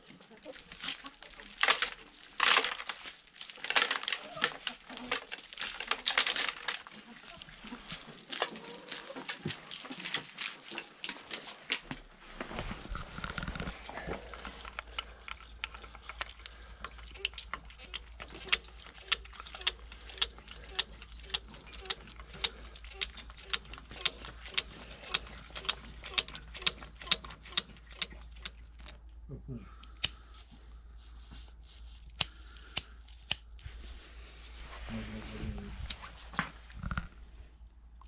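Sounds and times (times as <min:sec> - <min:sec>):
fuel dripping onto corn cob: 0:13.4 - 0:29.1
kernels stripped off cob clicking: 0:32.1 - 0:33.5.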